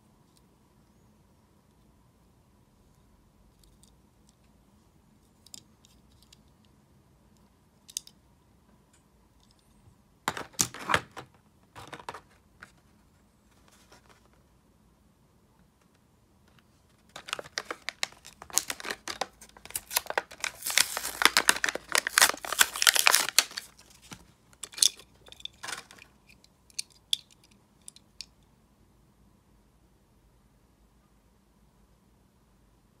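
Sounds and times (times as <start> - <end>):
plastic crinkling: 16.9 - 26.1
cardboard tearing: 17.3 - 23.7.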